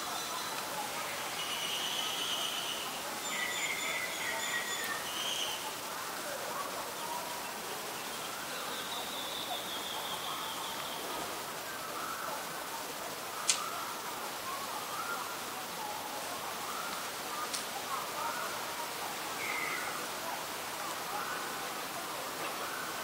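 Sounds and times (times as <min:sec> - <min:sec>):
distant birds calling: 0:00.0 - 0:23.0
steady hiss: 0:00.0 - 0:23.0.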